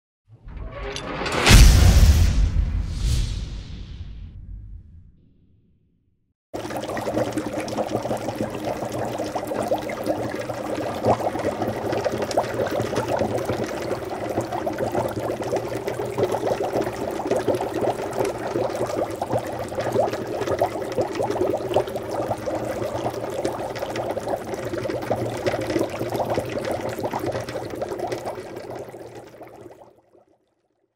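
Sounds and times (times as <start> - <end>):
water boiling: 6.6 - 30.5.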